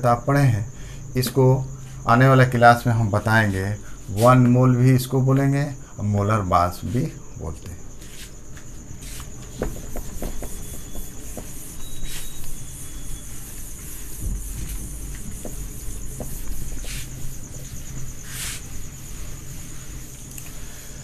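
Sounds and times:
cricket trill: 0:00.0 - 0:21.0
cloth wiping whiteboard: 0:09.0 - 0:21.0
small knocks: 0:09.4 - 0:12.6, 0:14.2 - 0:18.1.

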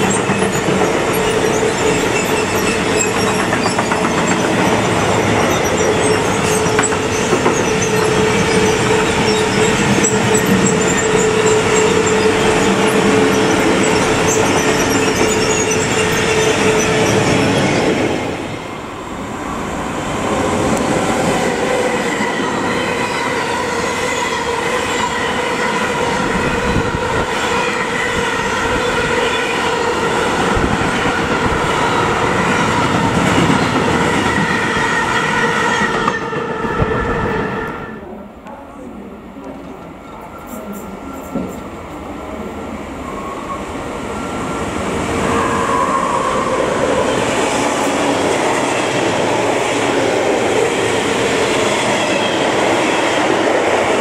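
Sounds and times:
freight wagons rolling on rails: 0:00.0 - 0:17.7
metallic wheel squeal: 0:00.0 - 0:17.9.

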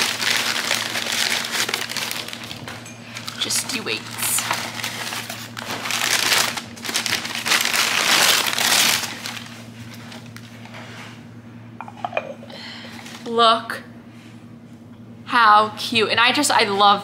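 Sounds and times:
packaging crinkling and rustling: 0:00.0 - 0:10.6.

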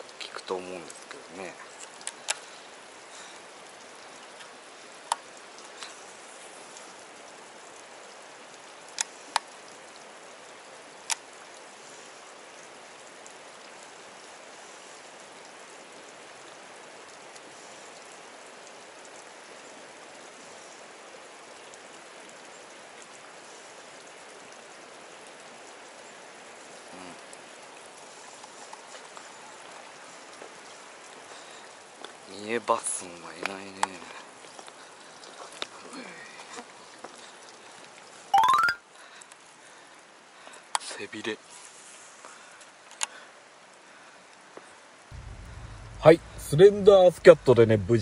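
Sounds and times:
creek water rushing: 0:00.0 - 0:12.4, 0:45.2 - 0:48.0.

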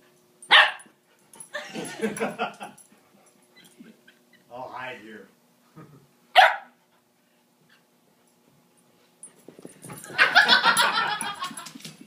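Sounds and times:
sharp dog bark: 0:06.4 - 0:06.7
dogs scuffling: 0:09.2 - 0:12.0.

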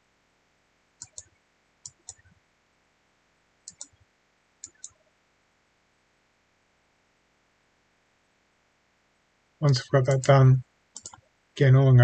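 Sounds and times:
computer mouse clicking: 0:01.0 - 0:02.3, 0:03.6 - 0:04.0, 0:04.6 - 0:05.0, 0:10.1 - 0:11.2.

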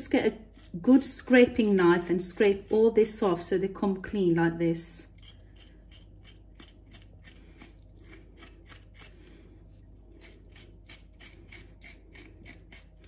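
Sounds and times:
knife scraping skin: 0:00.2 - 0:02.9, 0:05.2 - 0:09.4, 0:10.2 - 0:13.0.

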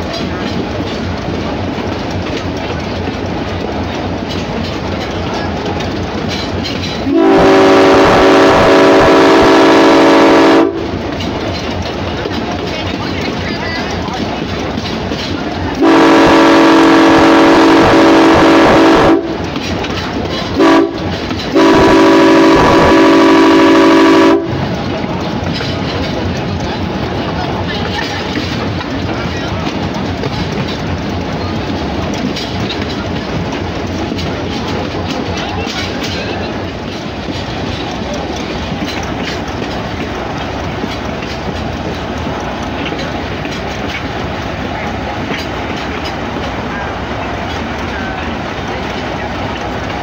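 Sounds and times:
diesel locomotive engine: 0:00.0 - 0:50.0
train running rumble: 0:00.0 - 0:50.0
wheels clacking over rails: 0:00.0 - 0:50.0
locomotive air horn blasts: 0:07.1 - 0:10.8, 0:15.8 - 0:19.4, 0:20.6 - 0:24.6.

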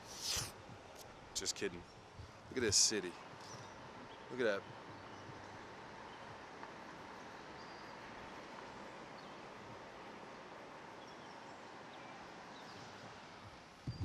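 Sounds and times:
even hiss: 0:00.0 - 0:01.8.

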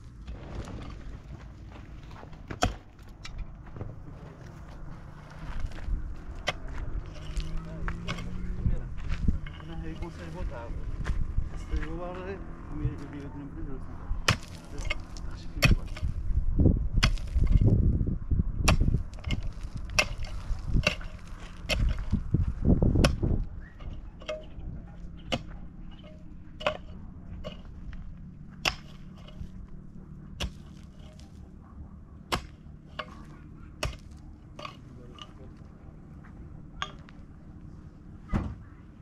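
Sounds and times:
low rumbling: 0:00.0 - 0:39.0
pickaxe striking stony soil: 0:02.1 - 0:03.9, 0:05.5 - 0:10.4, 0:14.2 - 0:16.2, 0:17.0 - 0:17.8, 0:18.6 - 0:24.6, 0:25.2 - 0:28.0, 0:28.6 - 0:29.6, 0:30.3 - 0:31.4, 0:32.3 - 0:35.4.

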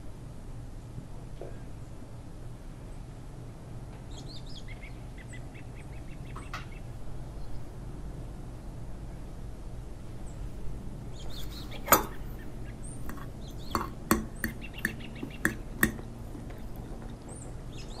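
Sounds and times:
steady low hum: 0:00.0 - 0:18.0
metal fork clicking on plate: 0:13.0 - 0:16.0.

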